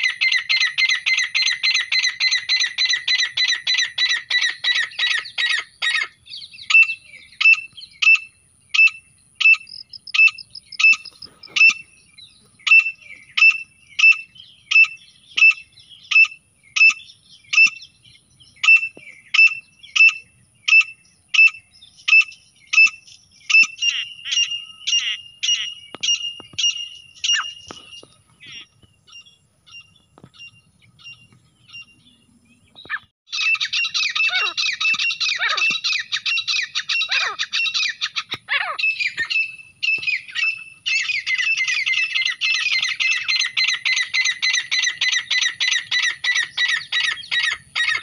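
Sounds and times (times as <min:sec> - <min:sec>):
francolin calls: 0:00.0 - 0:48.0.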